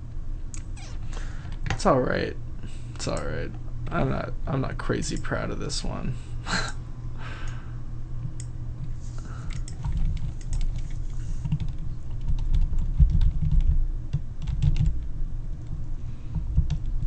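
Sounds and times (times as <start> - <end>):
keyboard and mouse clicking: 9.5 - 14.9.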